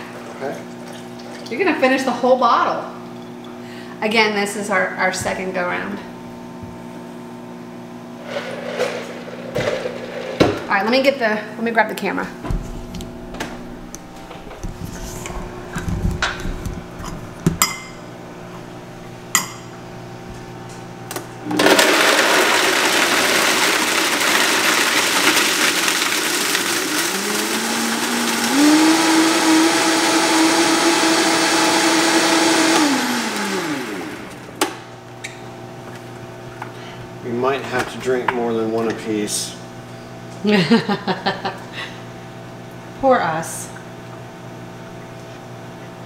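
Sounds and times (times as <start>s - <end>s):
blender blending ice: 8.2s - 10.7s, 21.4s - 34.8s.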